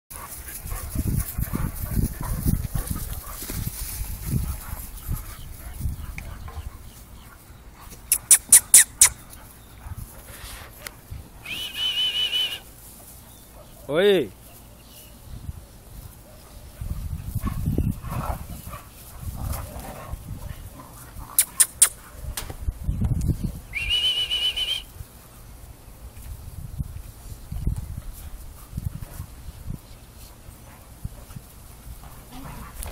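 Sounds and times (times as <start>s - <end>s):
dogs growling and scuffling: 0.1s - 8.2s, 9.2s - 11.4s, 12.7s - 22.6s, 27.0s - 32.9s
puppies scuffling: 0.1s - 11.4s
sharp clicks: 21.4s - 22.5s.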